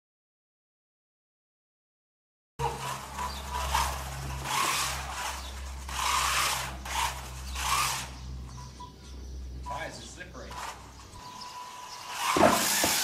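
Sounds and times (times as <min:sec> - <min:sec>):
rough scraping strokes: 0:09.7 - 0:13.0.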